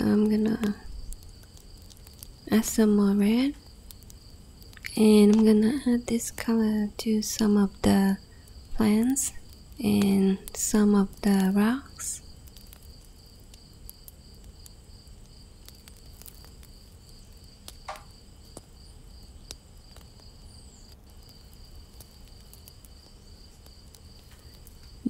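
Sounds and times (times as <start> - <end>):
cricket trilling: 0.0 - 25.0
faint taps and ticks: 3.5 - 5.5, 19.4 - 20.3.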